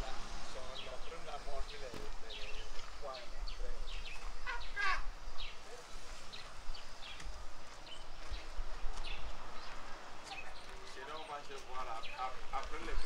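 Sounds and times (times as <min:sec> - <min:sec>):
bird chirps: 0:00.6 - 0:13.0.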